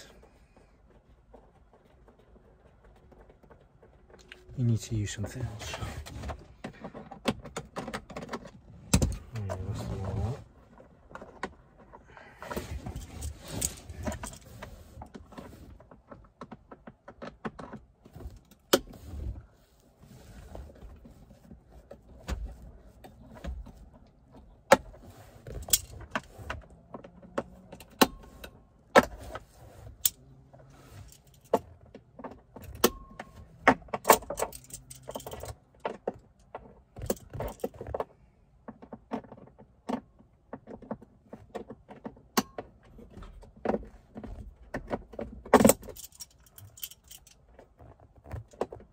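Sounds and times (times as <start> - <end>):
hand tools clicking and rattling: 25.4 - 28.5, 29.1 - 37.9, 44.8 - 47.6.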